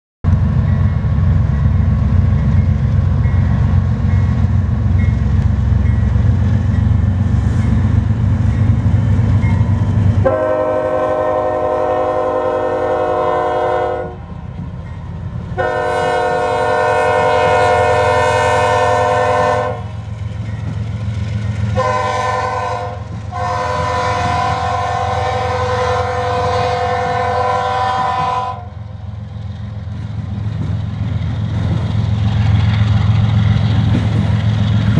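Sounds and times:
locomotive air horn blasts: 0:10.2 - 0:14.2, 0:15.6 - 0:20.0, 0:21.8 - 0:28.8.

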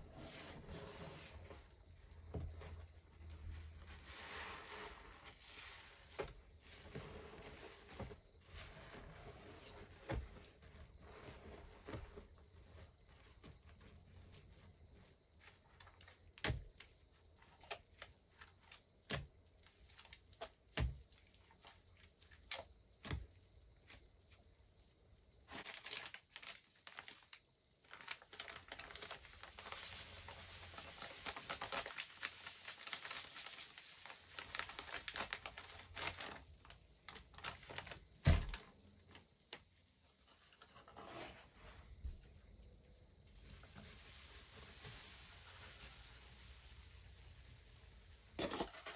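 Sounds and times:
plastic packet crinkling: 0:25.5 - 0:38.6.

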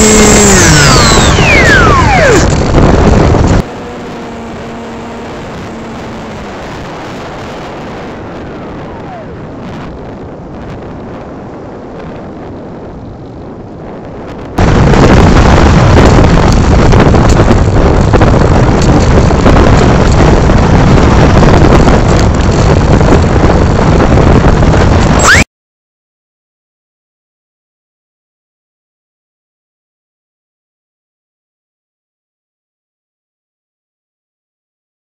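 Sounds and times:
model plane motor and propeller: 0:00.0 - 0:09.5, 0:15.8 - 0:24.1
falling whine: 0:00.0 - 0:12.3
distorted wind rush: 0:00.0 - 0:25.5.

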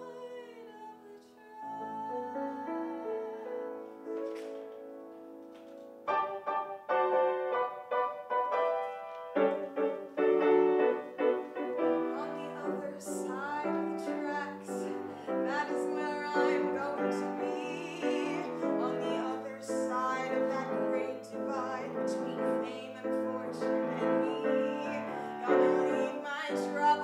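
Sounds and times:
woman singing with vibrato: 0:00.0 - 0:04.0, 0:11.9 - 0:27.0
piano accompaniment: 0:00.0 - 0:27.0.

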